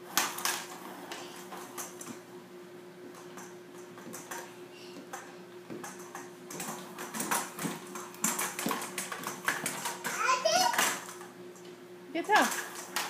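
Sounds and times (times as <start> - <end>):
push toy clattering on wooden floor: 5.1 - 11.3.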